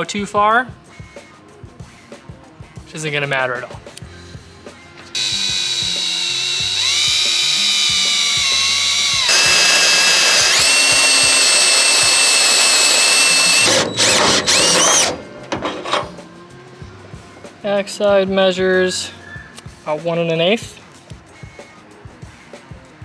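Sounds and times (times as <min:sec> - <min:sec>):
cordless drill whining: 0:05.2 - 0:15.2
hole saw grinding: 0:05.2 - 0:15.2.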